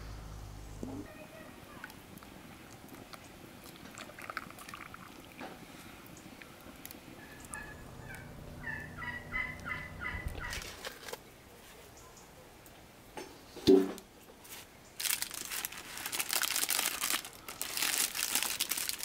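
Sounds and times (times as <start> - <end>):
turkey gobbling: 7.2 - 10.8.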